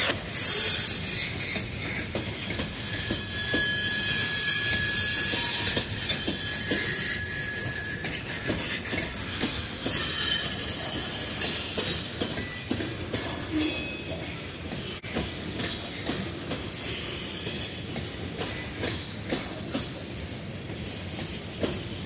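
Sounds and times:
high wheel squeal: 0:00.0 - 0:15.0
freight train wheels rumbling: 0:00.0 - 0:22.0
wheels clacking over rail joints: 0:00.0 - 0:22.0.

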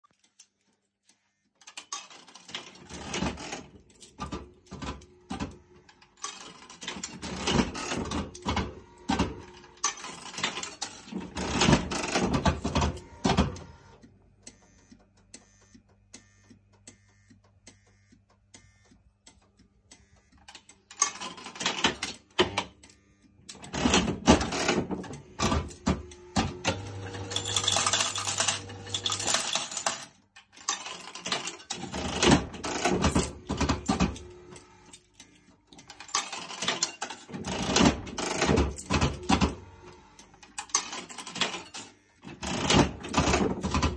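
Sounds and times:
slot machine clicking and rattling: 0:01.6 - 0:13.6, 0:20.9 - 0:22.5, 0:23.6 - 0:26.1, 0:26.7 - 0:35.1, 0:35.8 - 0:39.6, 0:40.2 - 0:43.9.

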